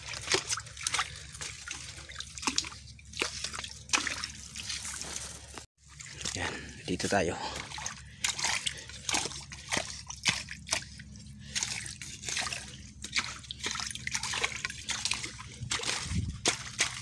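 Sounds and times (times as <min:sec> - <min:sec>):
muddy water sloshing and splashing: 0:00.0 - 0:17.0
blade scraping through mud: 0:07.7 - 0:17.0.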